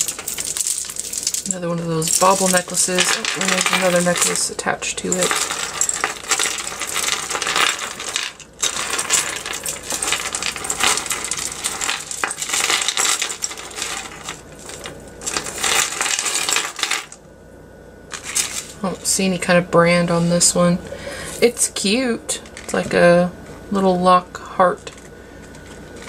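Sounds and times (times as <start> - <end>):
jewelry clinking and jingling: 0.0 - 17.2.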